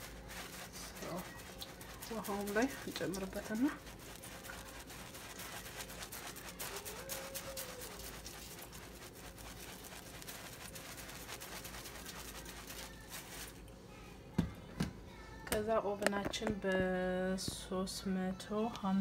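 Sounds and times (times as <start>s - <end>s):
seasoning shaker rattling: 0.0s - 13.7s.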